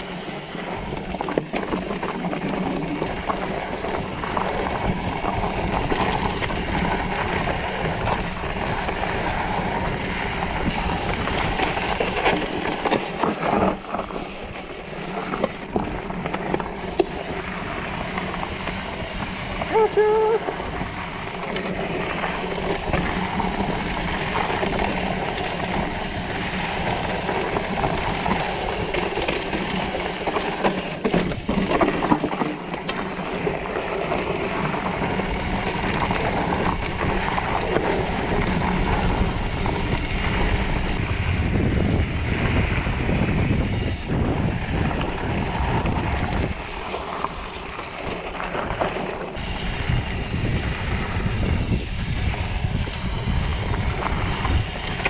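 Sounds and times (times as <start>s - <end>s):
tyres rumbling over dirt and rocks: 0.0s - 55.0s
wind buffeting microphone: 0.0s - 55.0s
bike knocks and rattles: 20.8s - 55.0s.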